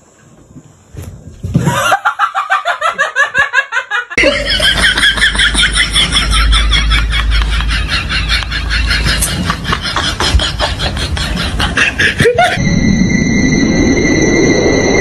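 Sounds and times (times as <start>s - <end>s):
person laughing hard: 1.6s - 12.6s
low hum: 4.2s - 15.0s.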